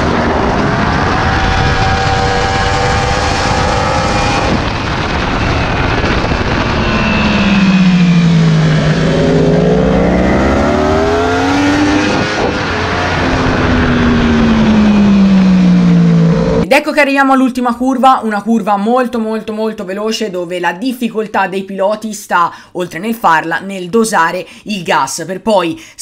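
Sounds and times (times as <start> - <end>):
motorcycle engine at speed: 0.0 - 16.6
wind rushing: 0.0 - 16.7.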